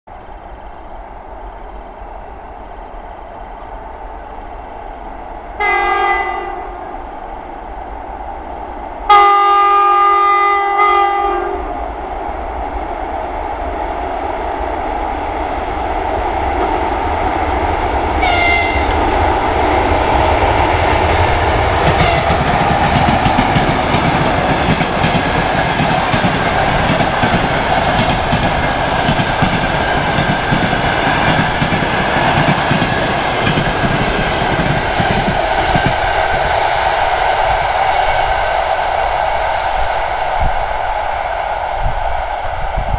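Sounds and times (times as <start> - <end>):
locomotive horn blasts: 5.6 - 7.0, 9.1 - 11.7, 18.2 - 19.0, 22.0 - 22.3.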